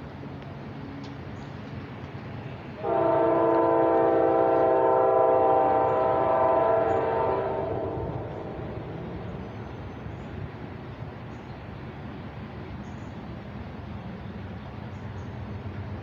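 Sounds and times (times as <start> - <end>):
train air horn blast: 2.8 - 8.6.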